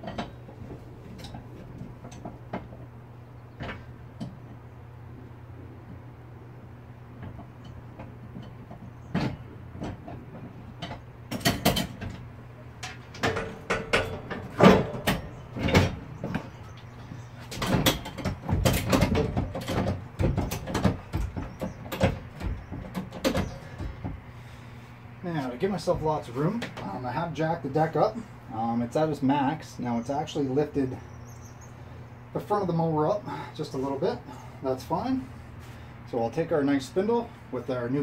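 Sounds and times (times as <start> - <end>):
jack metal clicks and clunks: 0.0 - 4.6, 7.1 - 24.6.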